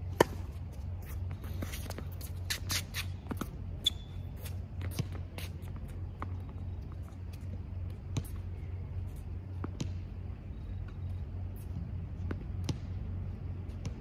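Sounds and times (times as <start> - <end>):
distant racquet hits: 0.1 - 0.6
shoes scuffing on hard court: 0.1 - 10.0
sneaker squeak: 1.0 - 7.3
ball bouncing: 7.9 - 8.4, 9.5 - 10.0, 12.2 - 13.0.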